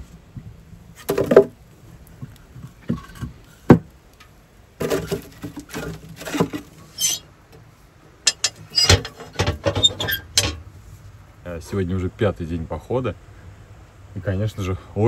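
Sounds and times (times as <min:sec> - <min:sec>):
firewood knocking and clattering: 0:00.3 - 0:10.7
metal stove door clanks: 0:08.3 - 0:10.6.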